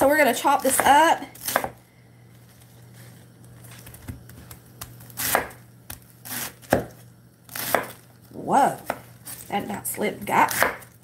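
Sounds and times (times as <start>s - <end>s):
knife chopping cabbage on wood: 0.6s - 1.8s, 4.8s - 8.0s, 10.4s - 11.0s.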